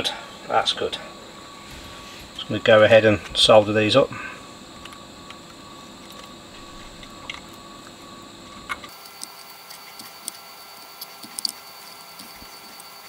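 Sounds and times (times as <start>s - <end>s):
soldering clicks and crackles: 8.7s - 13.0s.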